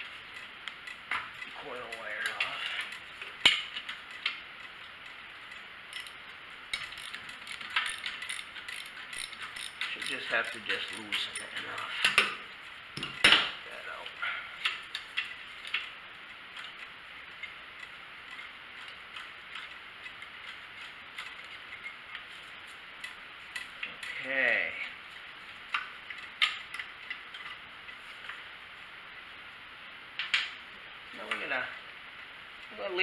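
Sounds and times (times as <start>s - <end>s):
wrench clicking on bolt: 5.9s - 11.6s.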